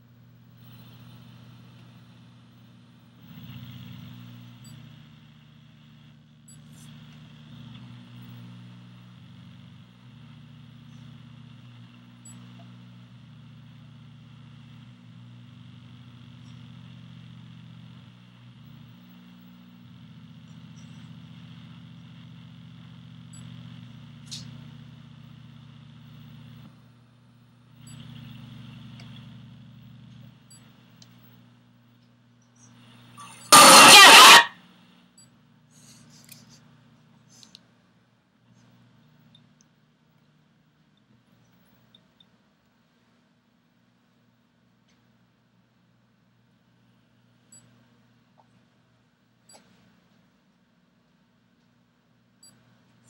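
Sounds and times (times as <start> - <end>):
low steady rumble: 0.0 - 53.0
short sharp high sound: 33.2 - 34.5.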